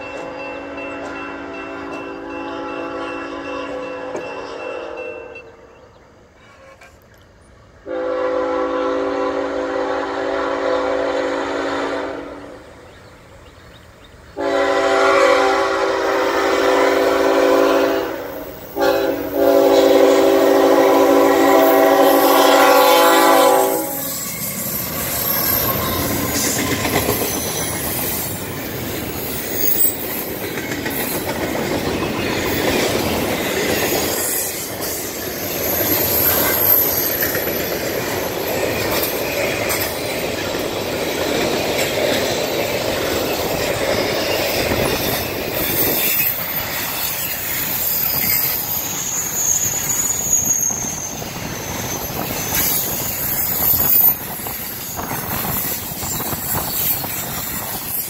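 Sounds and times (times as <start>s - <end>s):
locomotive air horn blasts: 0.5s - 5.3s, 7.8s - 12.6s, 14.4s - 24.2s
train wheels rumbling and clattering: 12.6s - 58.0s
faint wheel squeal: 43.8s - 58.0s.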